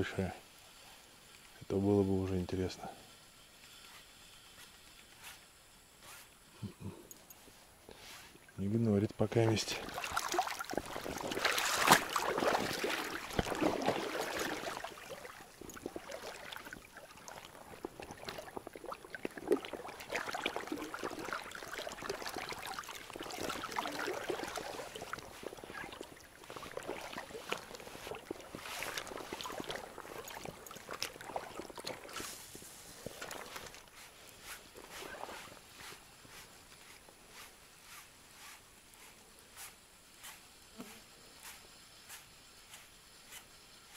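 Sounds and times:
river water splashing around legs: 0:09.4 - 0:37.5.

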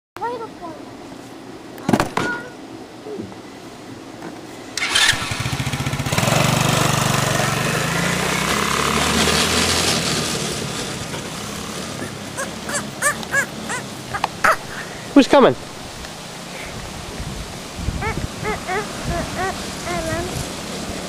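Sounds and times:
atv engine starting and revving: 0:04.8 - 0:14.1
short high calls: 0:12.0 - 0:15.0, 0:18.0 - 0:20.4.

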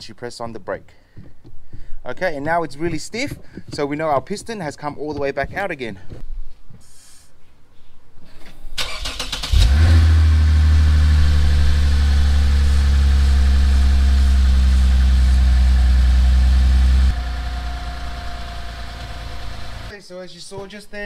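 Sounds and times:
car engine starting and idling: 0:08.8 - 0:19.9.

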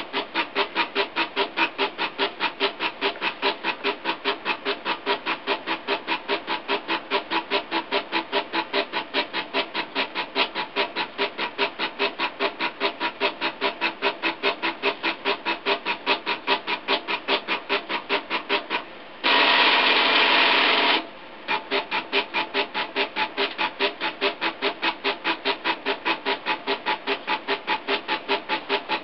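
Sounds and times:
stepper motors buzzing: 0:19.2 - 0:21.0.

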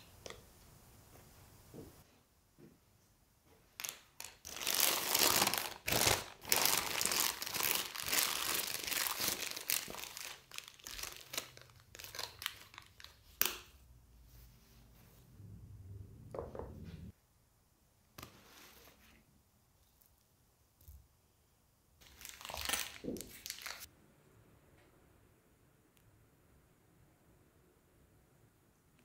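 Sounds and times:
plastic bag crinkling: 0:03.8 - 0:13.4, 0:22.0 - 0:23.9.

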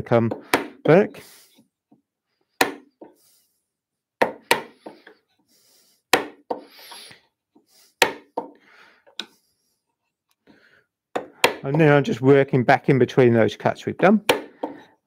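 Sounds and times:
mallet striking chisel: 0:00.3 - 0:00.9, 0:04.2 - 0:05.0, 0:06.1 - 0:06.6, 0:08.0 - 0:08.6, 0:11.2 - 0:11.9, 0:14.3 - 0:14.9.

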